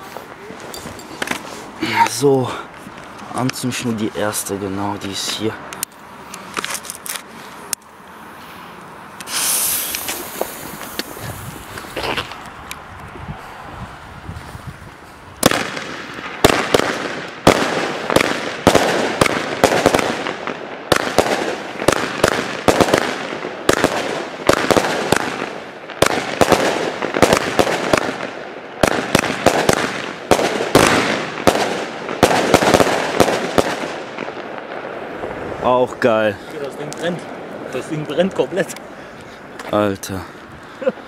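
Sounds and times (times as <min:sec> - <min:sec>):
firework shots launching and bursting: 0:09.2 - 0:11.2, 0:15.4 - 0:35.6.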